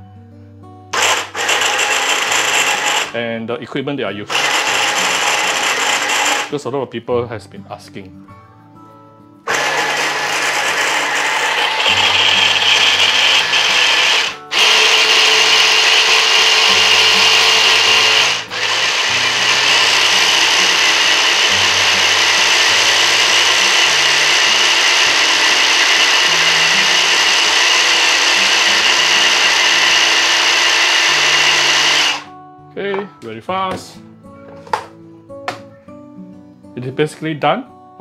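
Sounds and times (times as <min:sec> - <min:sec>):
electric chopper whirring: 0:00.9 - 0:03.2, 0:04.3 - 0:06.5, 0:09.5 - 0:32.3.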